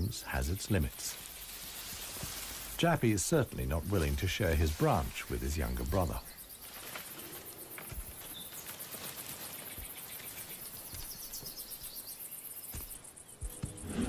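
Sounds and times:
insects trilling: 0:00.0 - 0:14.0
bird chirps: 0:04.0 - 0:14.0.

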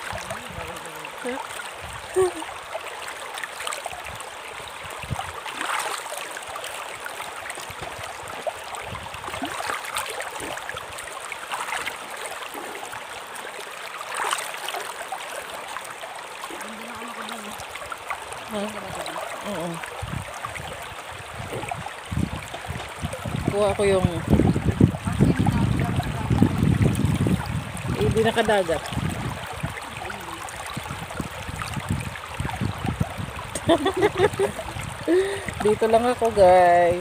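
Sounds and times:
river running over stones: 0:00.0 - 0:37.0
person splashing in water: 0:05.4 - 0:06.8, 0:09.2 - 0:13.4, 0:14.0 - 0:15.1.

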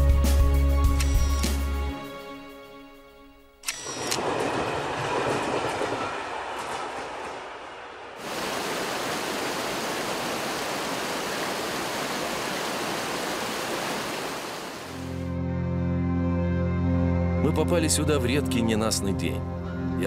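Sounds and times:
stream white water rushing: 0:08.2 - 0:15.2.

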